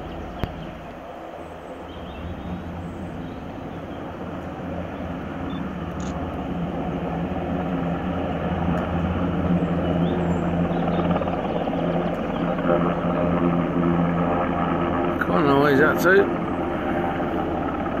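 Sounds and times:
helicopter rotor and engines droning: 0:00.0 - 0:18.0.

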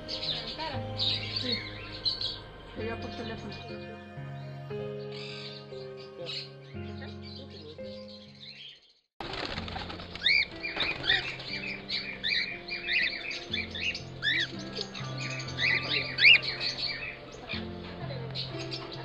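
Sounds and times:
background music with low notes: 0:00.0 - 0:19.0
cockatiels chirping and squawking: 0:10.2 - 0:17.6.

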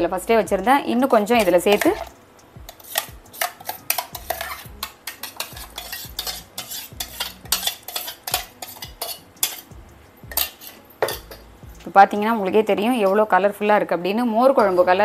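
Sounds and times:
wooden spoon scraping steel jar: 0:02.7 - 0:09.7, 0:10.3 - 0:11.4.

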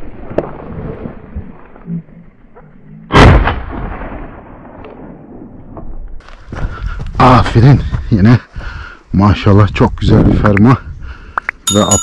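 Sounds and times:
shotgun shot: 0:03.1 - 0:05.2
wind noise: 0:04.4 - 0:12.0.

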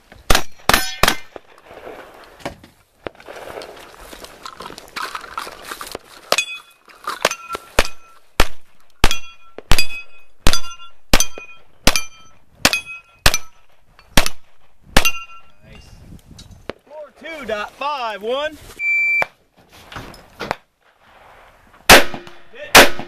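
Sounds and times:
steel plate ringing: 0:09.0 - 0:13.6
handgun shots: 0:21.9 - 0:23.0.

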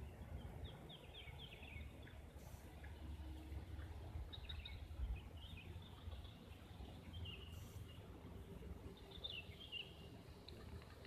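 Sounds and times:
low steady rumble: 0:00.0 - 0:11.0
bird chirps: 0:04.2 - 0:08.1, 0:08.9 - 0:10.2.

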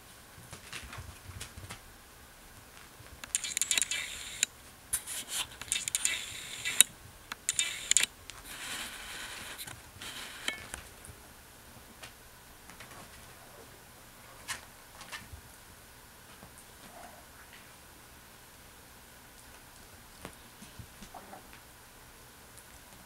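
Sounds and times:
kitten claws scratching bedspread: 0:03.3 - 0:10.4.

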